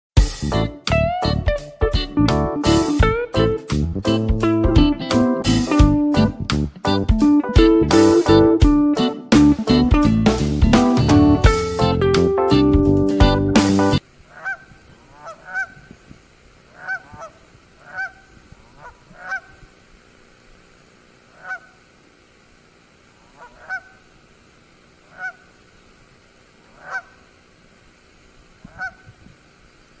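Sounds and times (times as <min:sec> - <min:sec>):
strummed guitar music: 0:00.2 - 0:14.0
geese honking: 0:14.2 - 0:19.8, 0:21.2 - 0:21.9, 0:23.2 - 0:24.3, 0:25.0 - 0:25.9, 0:26.6 - 0:27.4, 0:28.5 - 0:29.4.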